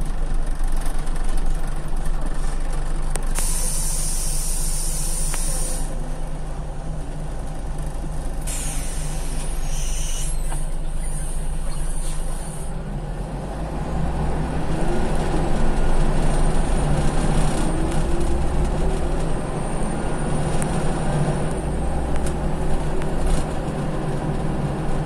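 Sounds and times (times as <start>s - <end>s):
bus diesel engine humming: 0.0s - 25.0s
compressed air hissing: 3.4s - 6.0s, 8.5s - 12.7s.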